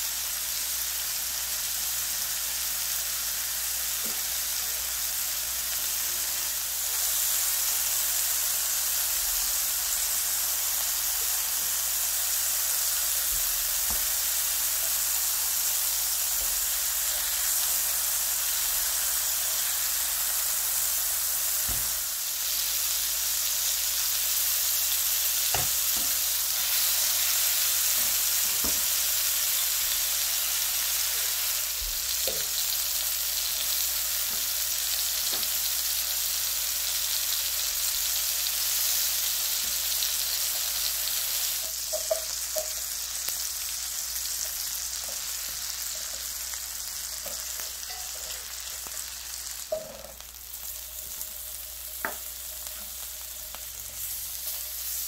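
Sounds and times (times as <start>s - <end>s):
food sizzling in butter: 0.0s - 55.0s.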